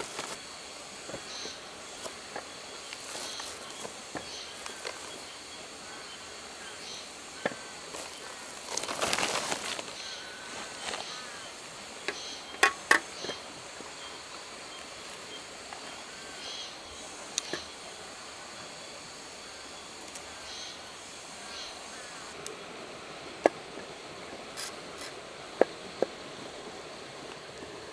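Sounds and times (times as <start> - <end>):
steady background hiss: 0.0 - 27.9
soft rustling: 2.0 - 5.2, 7.9 - 11.4
faint bird chirps: 9.8 - 18.0.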